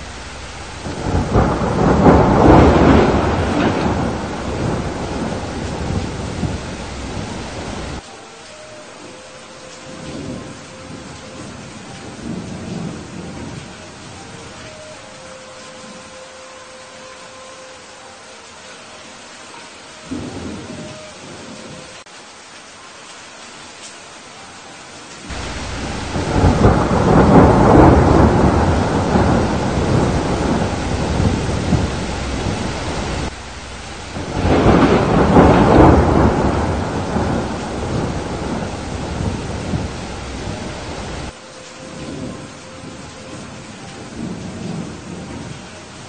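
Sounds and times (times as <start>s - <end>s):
thunder rolling: 0.0s - 8.0s, 25.3s - 41.4s
heavy rain: 0.0s - 46.0s.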